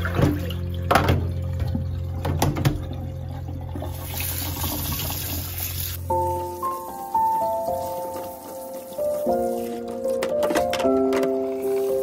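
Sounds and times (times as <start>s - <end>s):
tap water running: 0.0s - 12.0s
plastic basket knocking in sink: 0.1s - 1.3s.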